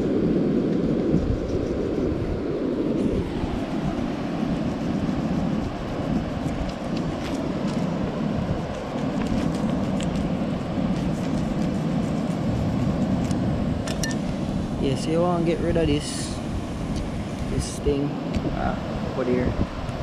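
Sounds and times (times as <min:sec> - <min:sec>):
wind and surf: 0:00.0 - 0:20.0
knife cutting fish ticks: 0:06.2 - 0:08.0, 0:08.8 - 0:14.0.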